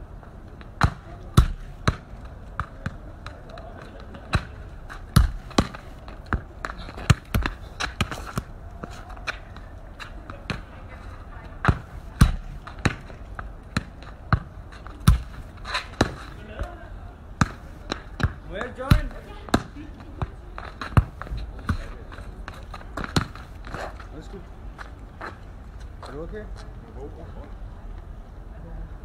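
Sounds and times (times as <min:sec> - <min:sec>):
football thudding on paving stones: 0:00.6 - 0:16.8, 0:17.4 - 0:24.0.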